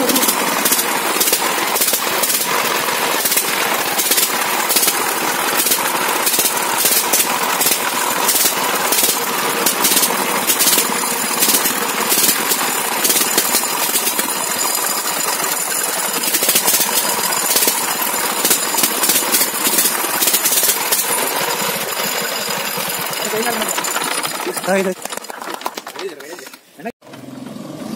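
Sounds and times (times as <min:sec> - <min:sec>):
diesel engine clattering: 0:00.0 - 0:27.5.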